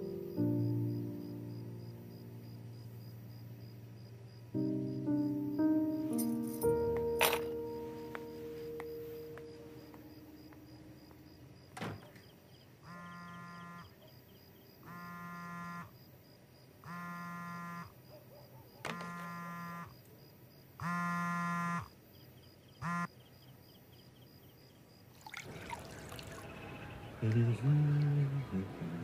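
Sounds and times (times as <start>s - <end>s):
phone vibrating: 12.8s - 14.0s, 14.8s - 15.9s, 16.8s - 17.9s, 18.9s - 19.9s, 20.8s - 21.9s, 22.8s - 23.1s.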